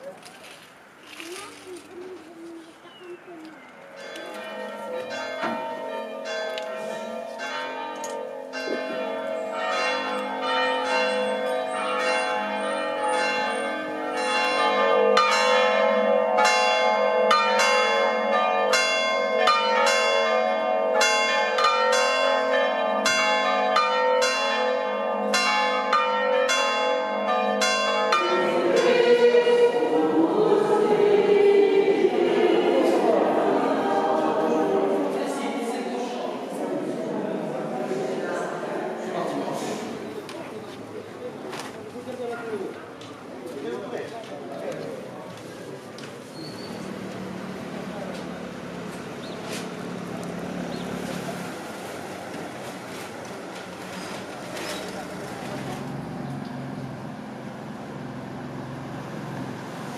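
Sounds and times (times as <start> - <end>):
church bells ringing in a peal: 3.4 - 36.6.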